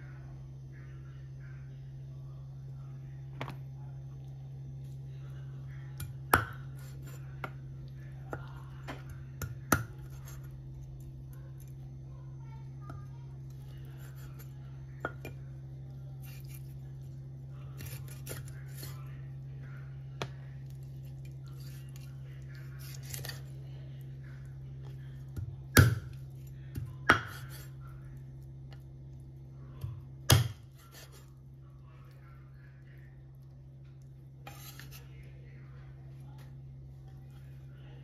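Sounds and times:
low hum: 0.0 - 38.0.

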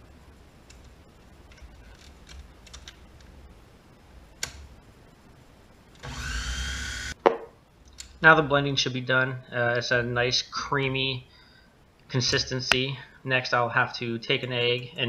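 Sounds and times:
blender motor running: 6.0 - 7.2.

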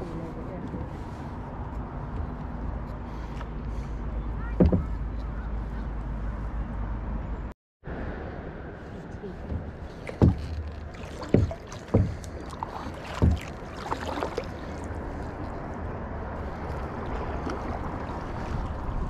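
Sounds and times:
steady low rumble: 0.0 - 19.0
paddle knocking on plastic kayak: 4.6 - 5.0, 9.5 - 14.5
paddle dipping and dripping in water: 9.4 - 19.0.

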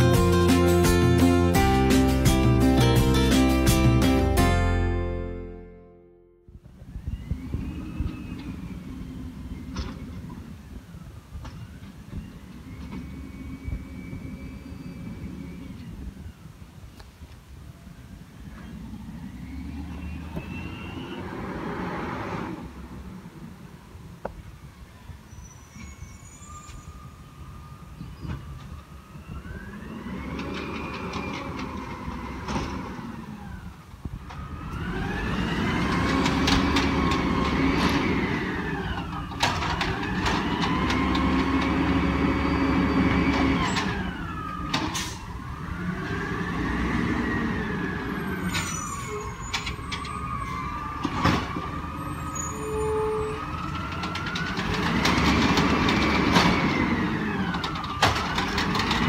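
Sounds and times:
truck engine revving: 0.0 - 5.7, 18.5 - 23.6, 29.4 - 59.0
carts clanking: 34.3 - 45.2, 51.0 - 59.0.

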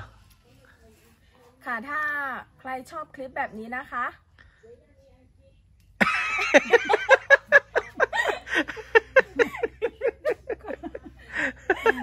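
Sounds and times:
woman laughing: 6.0 - 12.0.

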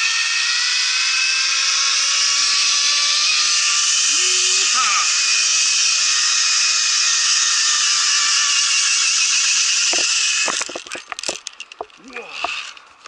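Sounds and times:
pulley whirring along cable: 0.0 - 13.0
hardware knocking and clattering: 9.9 - 12.6.

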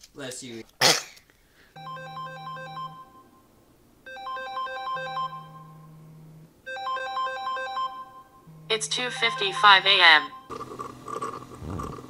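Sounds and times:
smartphone alarm jingle: 1.8 - 3.5, 4.1 - 5.9, 6.7 - 10.5.

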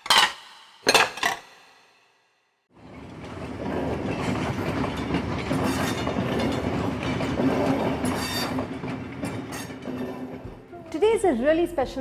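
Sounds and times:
train rumble and wheel clatter: 2.8 - 12.0.

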